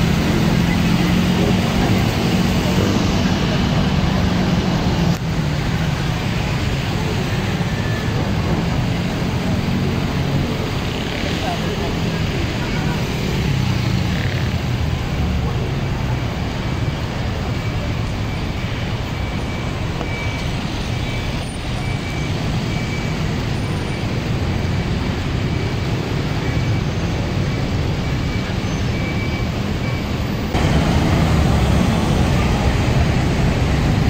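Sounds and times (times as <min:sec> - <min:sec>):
city street traffic: 0:00.0 - 0:34.0
high beep: 0:17.5 - 0:24.1, 0:25.5 - 0:30.5.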